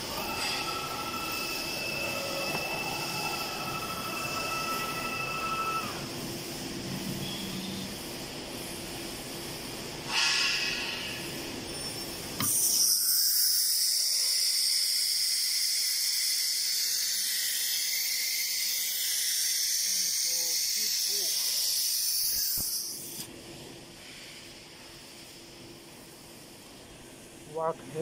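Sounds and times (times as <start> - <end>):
compressed air hissing: 7.2 - 11.7, 12.4 - 23.3, 23.9 - 25.6.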